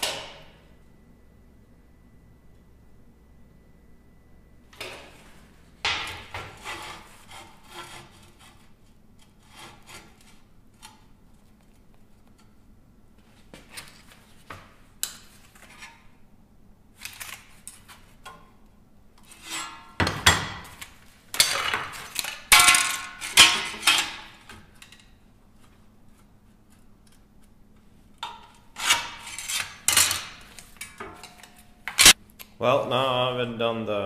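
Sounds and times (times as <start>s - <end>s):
steel plates clattering and scraping: 21.4s - 25.0s.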